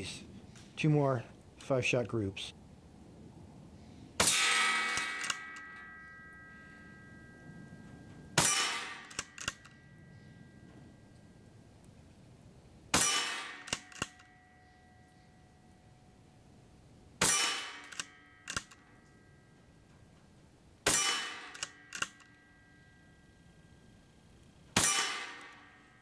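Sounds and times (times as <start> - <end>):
air rifle shots with metallic ring: 4.2 - 11.0, 12.9 - 15.8, 17.2 - 19.5, 20.8 - 23.4, 24.5 - 26.0.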